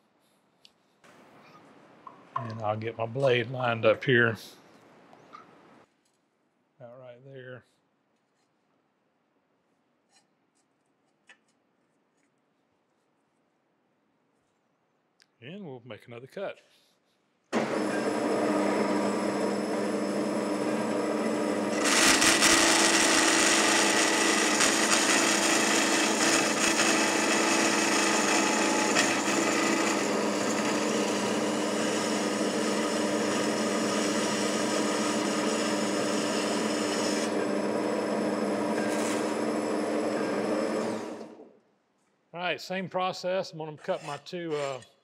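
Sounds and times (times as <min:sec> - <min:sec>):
band saw cutting steel: 0:17.6 - 0:41.4.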